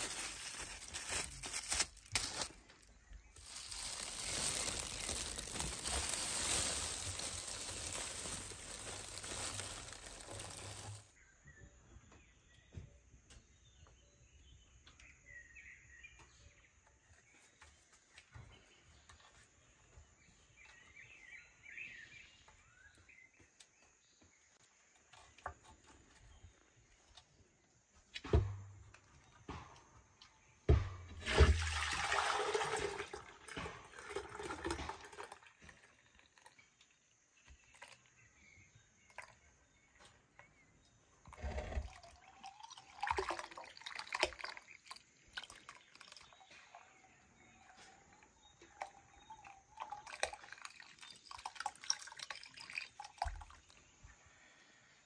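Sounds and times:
buttermilk pouring and gurgling: 0:03.4 - 0:11.1, 0:31.2 - 0:38.1, 0:41.2 - 0:47.0, 0:48.7 - 0:53.8.

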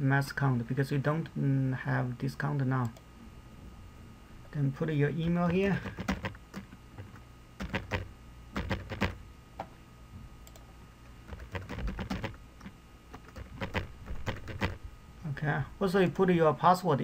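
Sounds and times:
keyboard typing: 0:05.4 - 0:09.2, 0:11.3 - 0:14.8.

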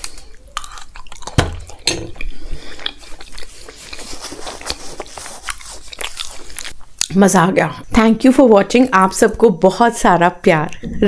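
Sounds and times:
wet chewing mouth sounds: 0:00.0 - 0:07.2.

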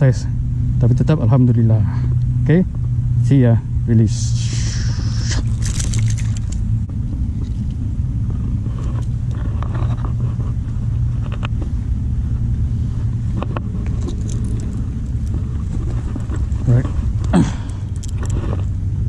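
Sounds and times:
low rumble with a hum: 0:00.0 - 0:19.0
faint rustles and clicks: 0:04.6 - 0:19.0.

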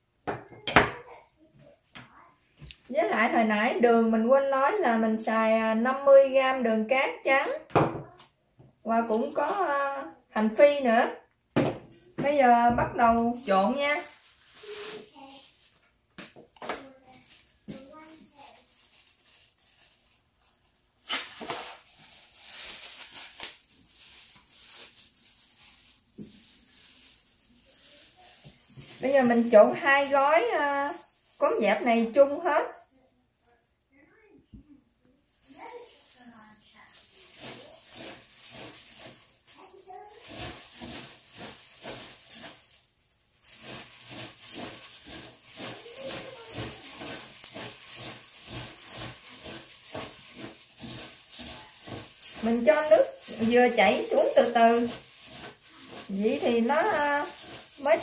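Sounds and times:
rice flakes rustling in plastic: 0:13.2 - 0:33.6, 0:35.1 - 0:58.0
sharp crackles: 0:13.4 - 0:15.9, 0:16.6 - 0:20.2, 0:34.8 - 0:58.0.

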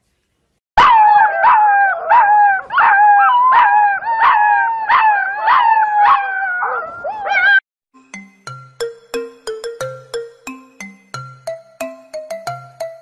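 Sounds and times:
puppies howling: 0:00.8 - 0:07.6.

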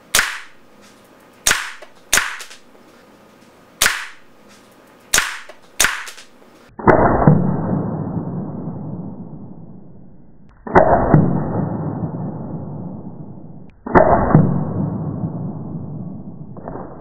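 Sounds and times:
paintball shot hitting gel block: 0:00.1 - 0:00.6, 0:01.5 - 0:02.6, 0:03.8 - 0:04.2, 0:05.1 - 0:06.3.

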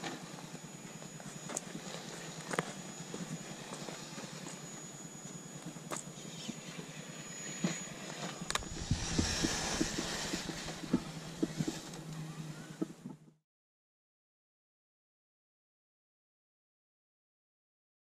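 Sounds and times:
electric motor humming: 0:00.2 - 0:12.9
loud scrubbing noise: 0:08.4 - 0:12.1.

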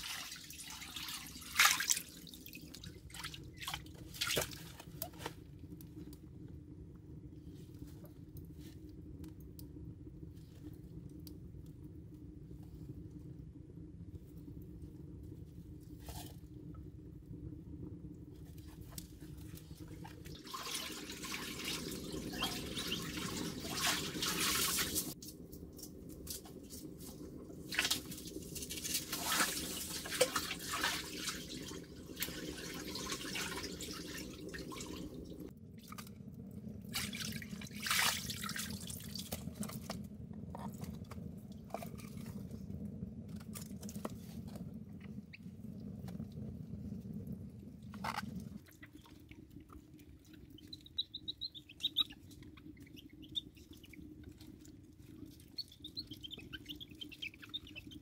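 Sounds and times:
water splashing and dripping: 0:00.0 - 0:05.4, 0:19.5 - 0:40.0, 0:48.0 - 0:58.0.

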